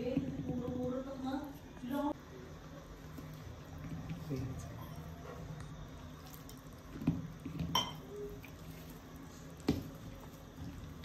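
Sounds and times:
hand squishing wet batter: 5.5s - 11.0s.

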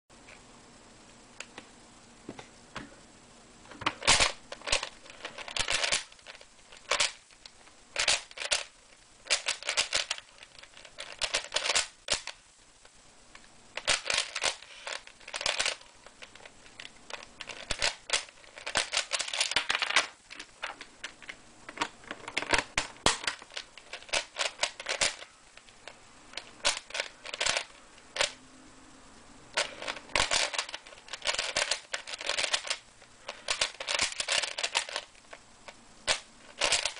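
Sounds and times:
puzzle cube layers clicking: 3.9s - 7.3s, 9.3s - 12.4s, 13.8s - 20.2s, 22.2s - 25.8s, 26.4s - 28.4s, 29.6s - 36.9s.

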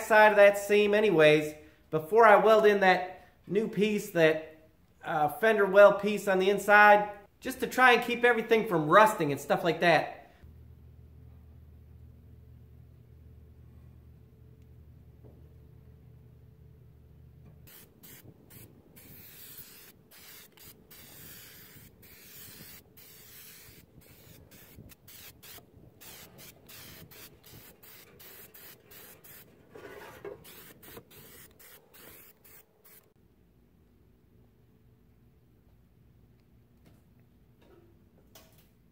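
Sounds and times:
aerosol can spraying: 17.6s - 29.5s, 30.2s - 33.2s.

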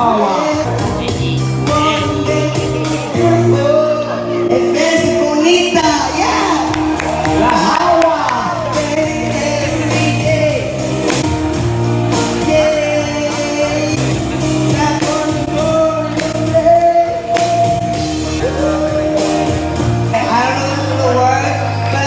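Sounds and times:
person singing into a microphone: 0.0s - 6.7s, 7.4s - 10.9s, 12.1s - 22.0s
backing track with steady beat: 0.0s - 22.0s.

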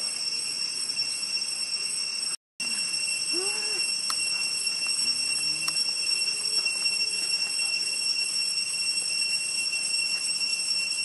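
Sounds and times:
cicadas droning: 0.0s - 11.0s
faint low calls: 4.9s - 8.0s.

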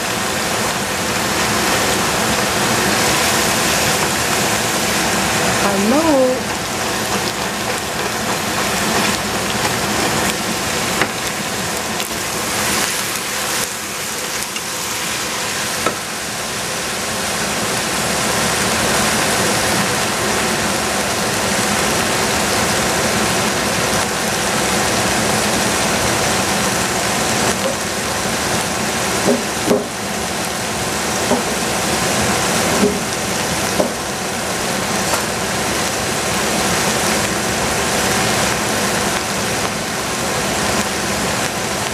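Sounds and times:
vegetables sizzling in a pot: 0.0s - 41.9s.

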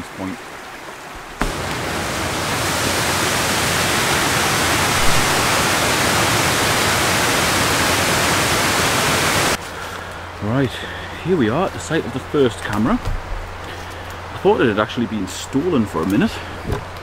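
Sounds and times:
waterfall rushing: 1.4s - 9.6s.

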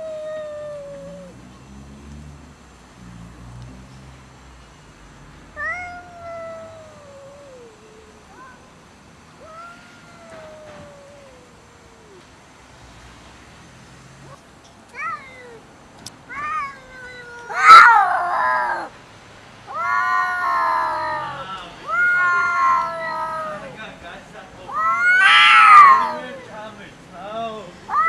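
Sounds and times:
cats yowling: 0.0s - 1.4s, 5.6s - 8.8s, 9.4s - 12.4s, 14.2s - 19.0s, 19.7s - 23.8s, 24.7s - 26.7s.

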